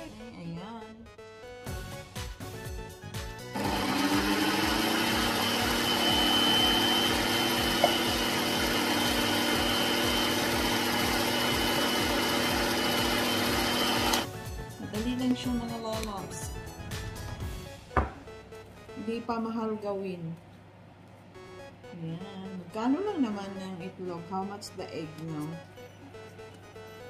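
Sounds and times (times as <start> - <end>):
background music with steady beat: 0.0 - 20.0, 20.7 - 27.0
electric hand mixer whirring: 3.5 - 14.3.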